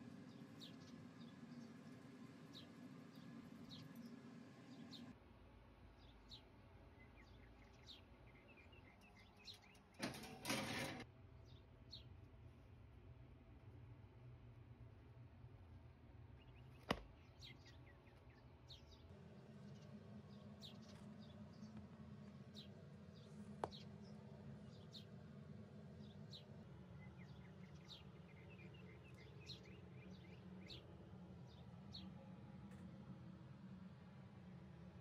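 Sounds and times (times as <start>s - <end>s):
faint small birds chirping: 0.0s - 5.2s, 5.8s - 10.3s, 16.4s - 34.1s
low room hum: 0.0s - 35.0s.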